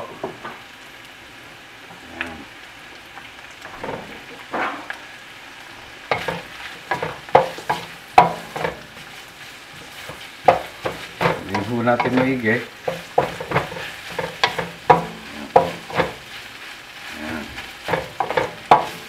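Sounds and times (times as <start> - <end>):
food sizzling in a pan: 0.0 - 19.0
wooden spatula scraping a pan: 6.1 - 19.0.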